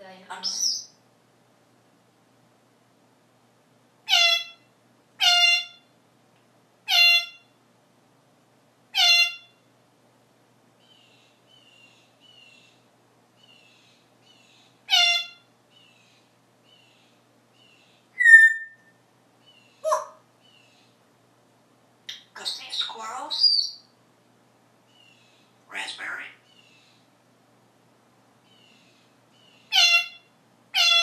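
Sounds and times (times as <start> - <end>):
parrot calling loudly: 0.4 - 0.9, 4.1 - 5.8, 6.9 - 7.5, 8.9 - 9.6, 14.9 - 15.5, 18.2 - 18.9, 19.8 - 20.2, 22.1 - 23.8, 25.7 - 26.5, 29.7 - 31.0.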